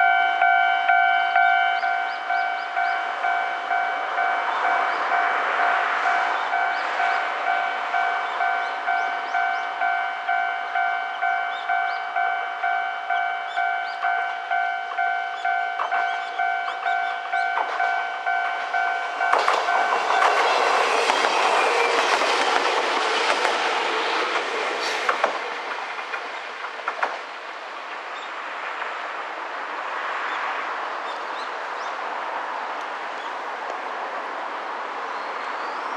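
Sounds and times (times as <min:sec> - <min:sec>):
level crossing warning bell beeping: 0:00.0 - 0:21.1
train wheels clicking over rail joints: 0:14.9 - 0:29.0.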